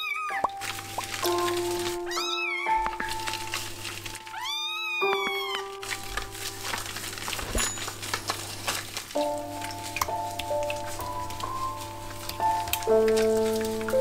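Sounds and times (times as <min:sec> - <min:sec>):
kitten meowing: 0:00.0 - 0:00.6, 0:02.0 - 0:03.1, 0:04.3 - 0:05.8.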